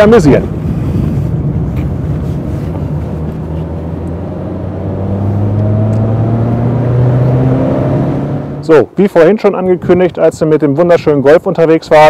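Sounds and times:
car engine accelerating: 0.5s - 8.8s.

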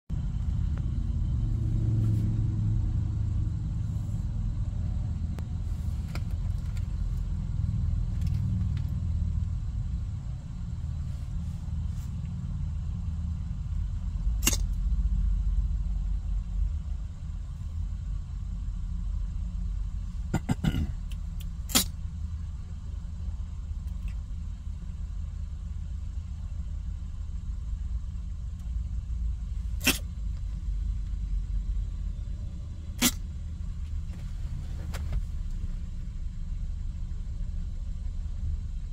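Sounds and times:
car road rumble: 0.1s - 38.9s
kitten sneezing: 21.7s - 22.0s, 29.7s - 30.1s, 33.0s - 33.2s.

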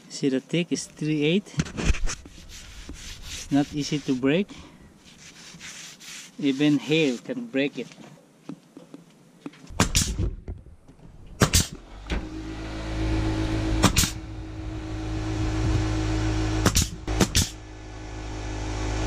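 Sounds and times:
nail gun firing: 9.7s - 10.3s, 11.4s - 11.8s, 13.8s - 14.2s, 16.6s - 17.6s
motor humming: 11.8s - 19.0s.

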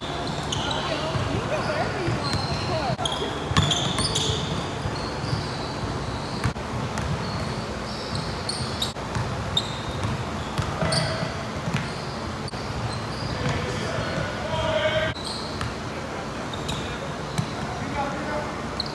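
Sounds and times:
sneaker squeaks: 0.0s - 18.9s
basketball bouncing: 0.3s - 5.5s, 6.4s - 13.6s.

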